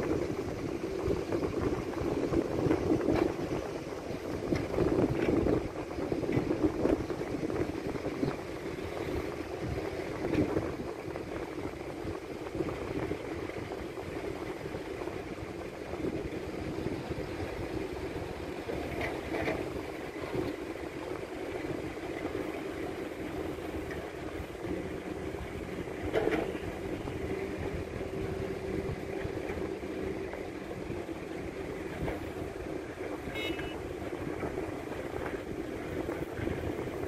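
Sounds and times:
excavator diesel engine: 12.6 - 37.0.

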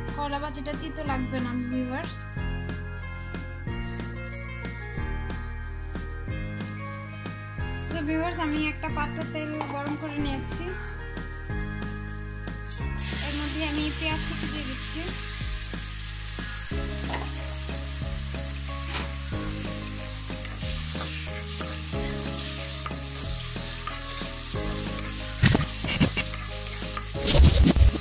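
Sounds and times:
onions sizzling in hot oil: 12.8 - 28.0.

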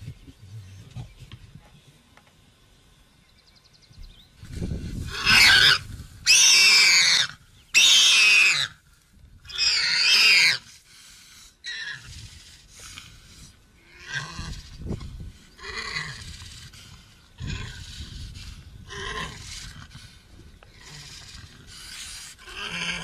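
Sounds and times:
warthog squealing: 5.0 - 8.8, 9.5 - 10.6.

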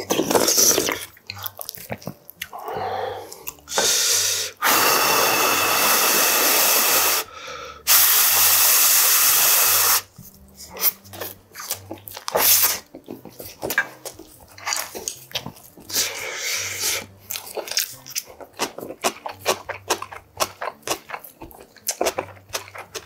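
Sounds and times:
person blowing on food: 2.5 - 11.0, 12.3 - 12.9, 15.9 - 17.2.

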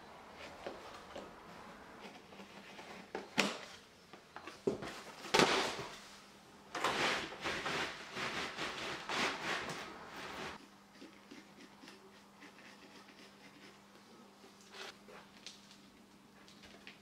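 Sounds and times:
sheet rustling and scraping: 6.8 - 10.6
knife cutting flooring underlay: 6.8 - 13.8.

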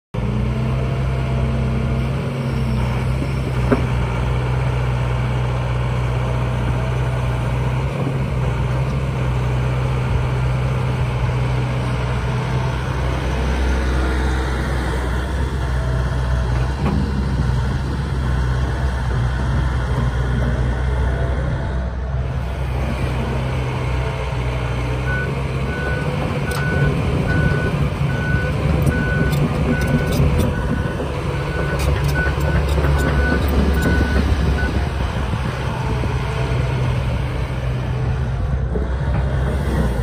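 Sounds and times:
excavator diesel engine running: 0.2 - 40.0.

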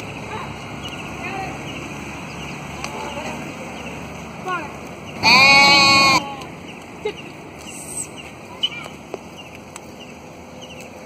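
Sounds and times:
sheep bleating: 5.2 - 6.2.

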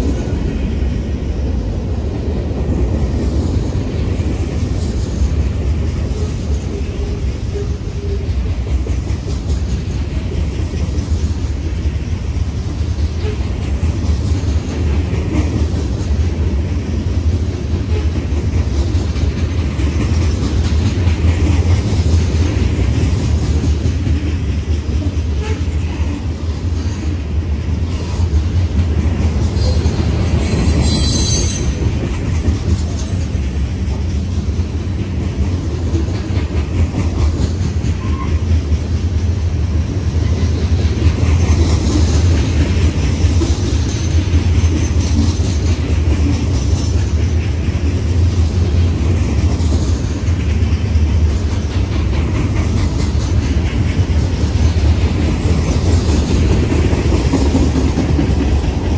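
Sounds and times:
train wheels rumbling on rail: 0.0 - 58.9
high-pitched wheel squeal: 29.6 - 31.8.

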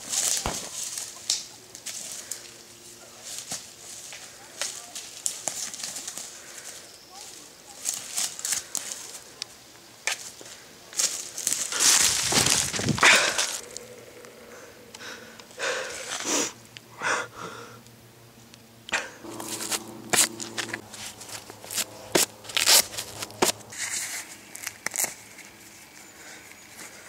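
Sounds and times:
dry leaves crunching: 0.0 - 14.0, 19.2 - 27.0.

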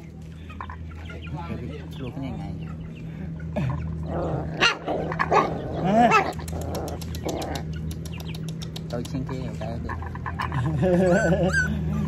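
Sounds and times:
dogs barking and yelping: 3.4 - 8.8, 9.9 - 12.0.

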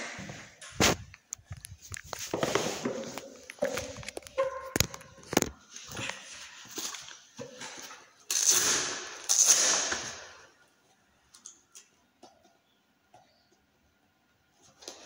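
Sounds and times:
clothing rustling on microphone: 0.2 - 4.4.

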